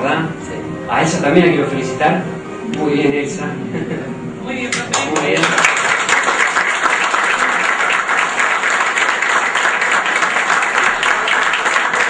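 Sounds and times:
group applauding: 4.7s - 12.0s.

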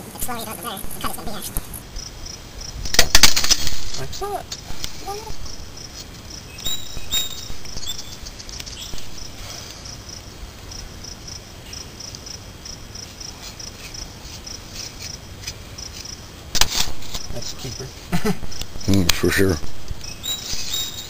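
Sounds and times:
insects trilling: 0.0s - 21.0s
short high chirps: 6.6s - 8.2s.

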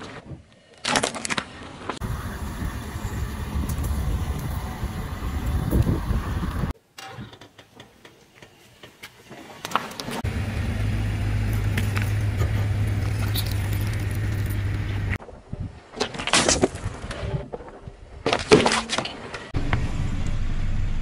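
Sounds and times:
car engine droning: 2.0s - 6.7s, 10.2s - 15.2s
pops and crackles under tyre: 11.5s - 15.2s.

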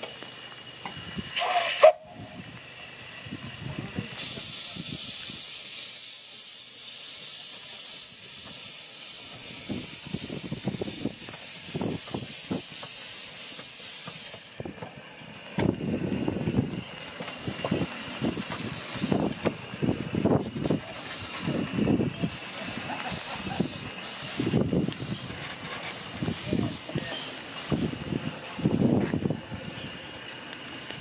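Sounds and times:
loud steady steam hiss: 0.0s - 31.0s
locomotive running gear thumps: 11.2s - 16.0s.

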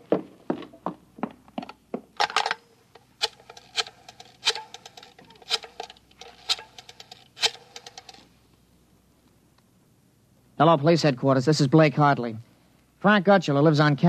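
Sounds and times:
rotary dial clicking: 3.2s - 8.2s.

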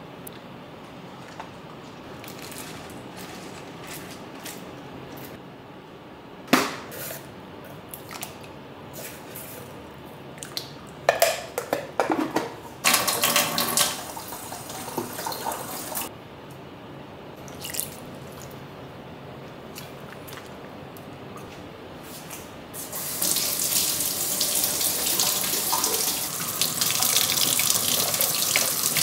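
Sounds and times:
tap water running over broccoli: 23.0s - 29.0s.

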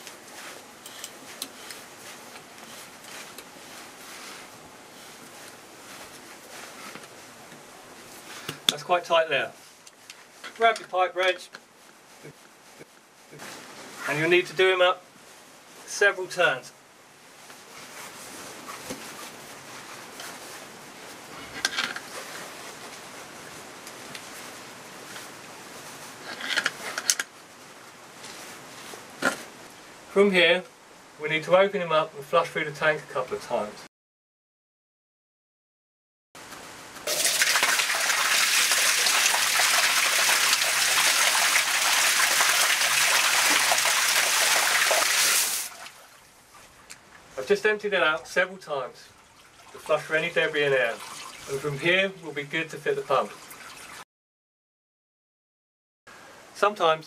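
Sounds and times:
water gushing and splashing: 37.0s - 46.2s, 50.9s - 51.6s, 53.4s - 54.0s.

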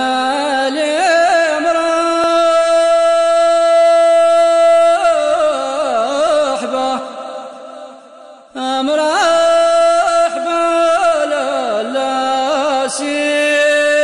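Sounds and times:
solo voice singing: 0.0s - 14.0s.

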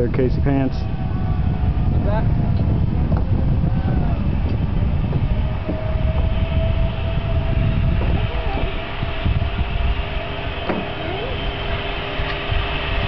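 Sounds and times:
low rumble: 0.0s - 13.0s
zipline pulleys whining on cable: 0.0s - 13.0s.

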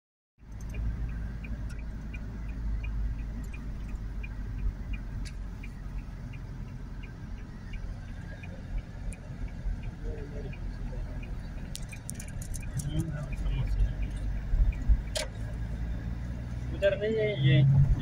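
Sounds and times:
faint light ticking: 0.4s - 16.5s
car engine and tyre rumble: 0.4s - 18.0s.

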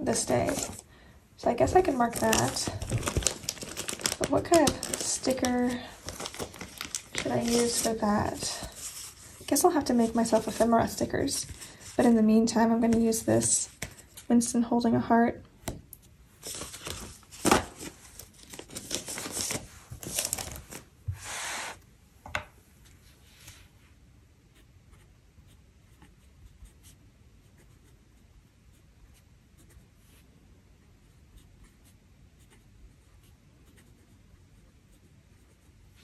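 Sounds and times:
paper rustling: 0.0s - 0.8s, 1.5s - 12.2s, 12.8s - 14.3s, 16.4s - 21.8s
fountain pen scratching paper: 32.4s - 34.1s.

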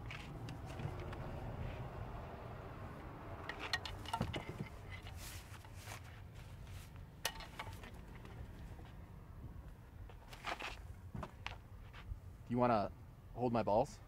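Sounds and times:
soft rustling: 4.5s - 7.1s.

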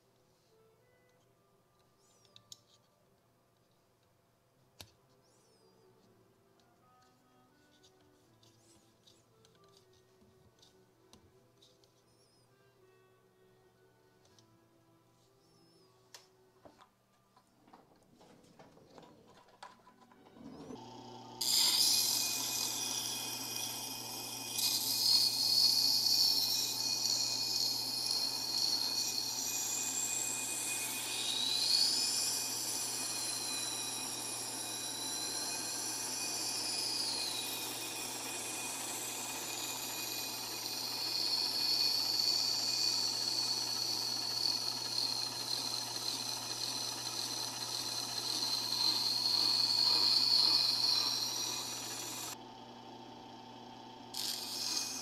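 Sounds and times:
motor hum: 18.4s - 55.0s
knife grinding with high whine: 20.4s - 52.4s, 53.6s - 55.0s.

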